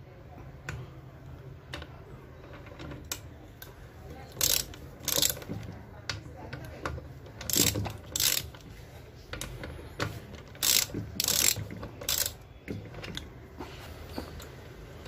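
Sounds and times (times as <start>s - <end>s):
ratchet wrench clicking: 4.4s - 5.5s, 7.4s - 8.6s, 10.6s - 12.4s.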